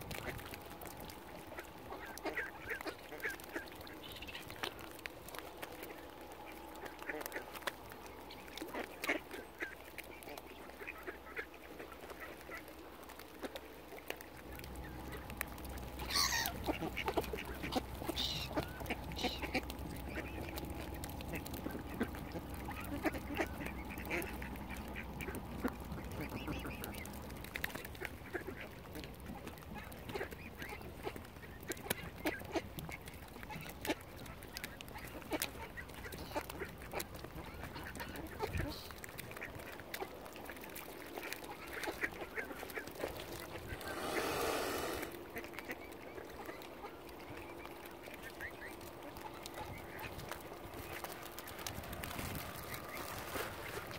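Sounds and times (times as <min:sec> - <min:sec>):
ducks quacking: 0:00.1 - 0:13.7, 0:14.4 - 0:53.9
falling bird call: 0:43.6 - 0:45.2.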